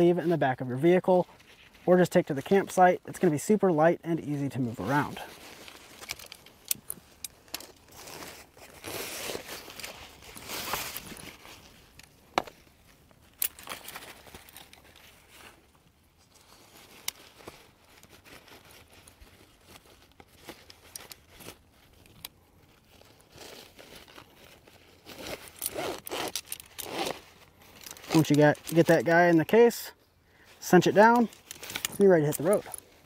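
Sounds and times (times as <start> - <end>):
fabric case rustling: 4.5 - 22.0, 22.7 - 29.1.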